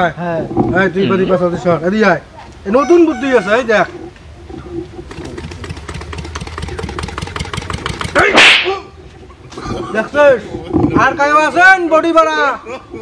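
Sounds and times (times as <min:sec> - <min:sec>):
engine-like sputtering: 0:04.4 - 0:08.4.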